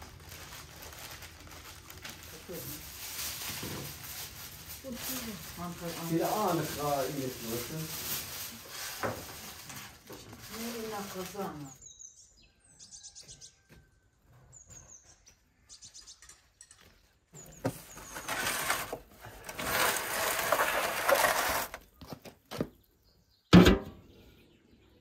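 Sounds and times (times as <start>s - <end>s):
small birds chirping: 10.6s - 18.3s, 21.9s - 25.0s
metal tray scraping on brick: 17.9s - 21.8s.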